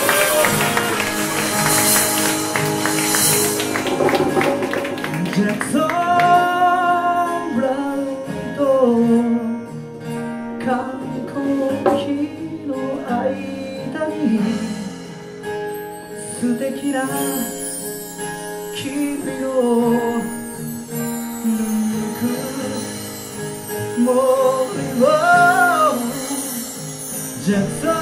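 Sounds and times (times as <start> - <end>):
live band playing: 0.0 - 8.6, 14.1 - 28.0
person singing: 3.5 - 9.6, 10.6 - 15.1, 16.3 - 17.7, 18.7 - 28.0.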